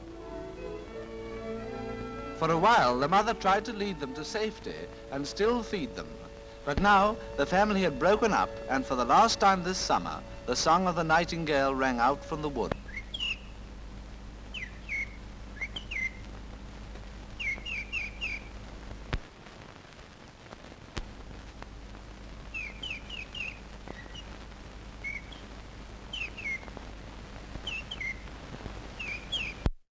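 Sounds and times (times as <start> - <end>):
low hum and hiss: 0.0 - 29.8
nightingale singing: 2.3 - 13.6, 14.5 - 16.2, 17.4 - 18.6, 22.5 - 24.3, 25.0 - 25.5, 26.1 - 26.7, 27.6 - 28.3, 29.0 - 29.7.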